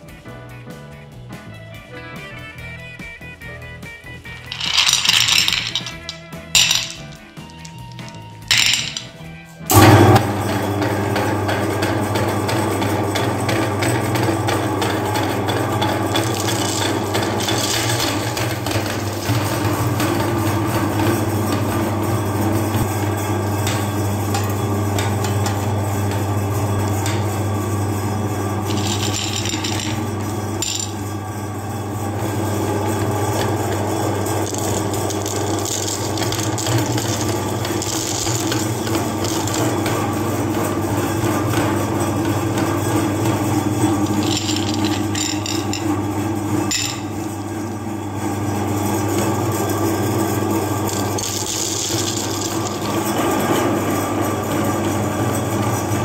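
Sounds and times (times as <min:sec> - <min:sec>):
candies rattling against metal: 0:04.2 - 0:09.8, 0:11.8 - 0:31.2, 0:32.9 - 0:47.3, 0:50.8 - 0:54.0
meat grinder motor humming: 0:04.3 - 0:56.0.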